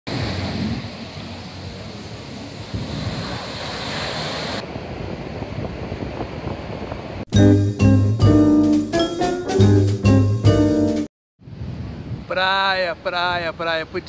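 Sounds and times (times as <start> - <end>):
wind buffeting microphone: 0.1 - 3.6, 4.6 - 7.3, 11.4 - 13.5
sea surf breaking on beach: 0.1 - 7.3.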